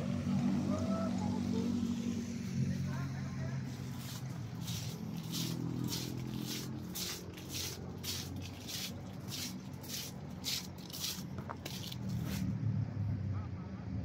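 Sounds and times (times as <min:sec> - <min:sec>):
footsteps scuffing on tiled floor: 0:03.8 - 0:12.5.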